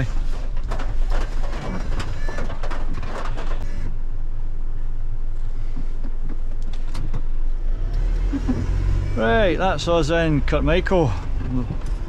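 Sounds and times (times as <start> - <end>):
diesel engine running: 3.6 - 12.0.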